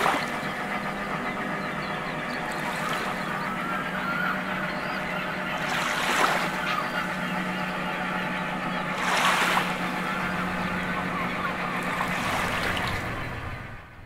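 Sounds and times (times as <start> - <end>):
water washing: 0.0 - 1.0, 5.5 - 7.3, 8.8 - 13.6
boat engine humming: 0.0 - 14.0.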